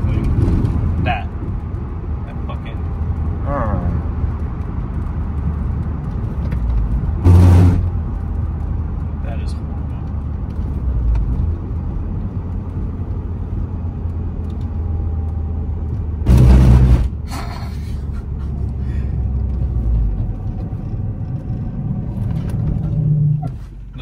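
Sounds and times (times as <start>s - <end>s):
road and engine rumble in car cabin: 0.0s - 24.0s
loud thump: 16.3s - 17.2s.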